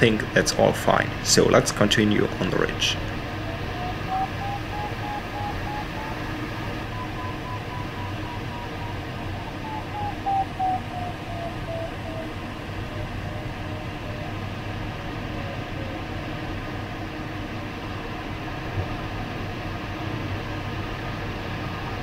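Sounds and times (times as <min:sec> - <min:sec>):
airflow rushing in cockpit: 0:00.0 - 0:22.0
variometer beeping: 0:03.2 - 0:14.4.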